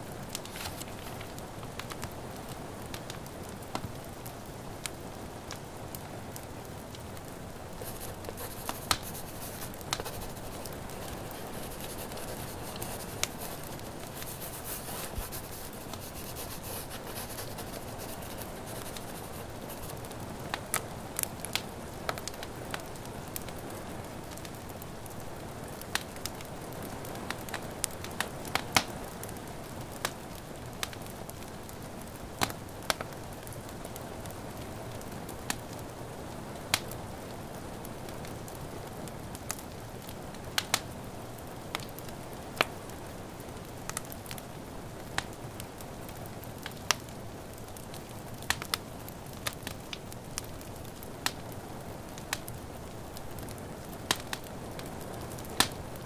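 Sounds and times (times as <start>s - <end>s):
rain hiss: 0.0s - 56.0s
wood fire crackling and popping: 0.0s - 56.0s
papery rustling: 0.4s - 1.3s, 7.8s - 20.0s.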